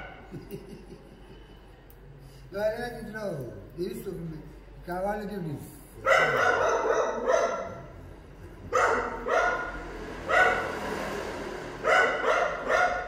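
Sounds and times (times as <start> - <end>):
dog barking: 0.0 - 0.3, 6.0 - 7.9, 8.7 - 10.9, 11.8 - 13.0.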